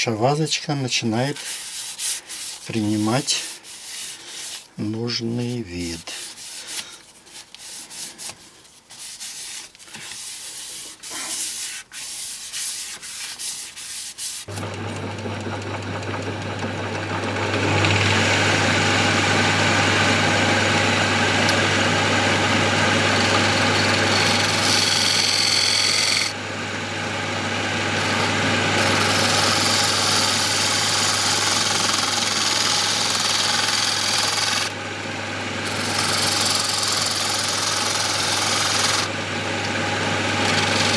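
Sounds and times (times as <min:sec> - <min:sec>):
sandpaper rubbing on wood: 0:01.3 - 0:04.7, 0:06.1 - 0:14.5
turning tool cutting wood: 0:14.4 - 0:26.4, 0:27.4 - 0:34.8, 0:35.6 - 0:40.9
wood lathe humming: 0:14.5 - 0:40.9.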